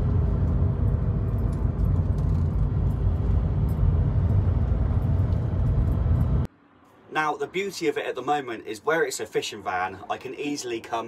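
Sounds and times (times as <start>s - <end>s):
engine and road rumble inside van: 0.0s - 6.5s.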